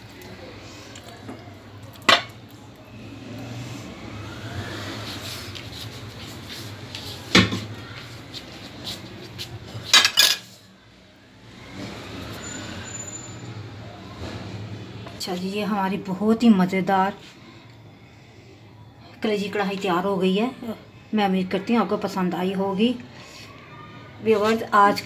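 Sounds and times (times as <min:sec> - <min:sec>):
porcelain and utensils clinking: 0:09.8 - 0:10.6.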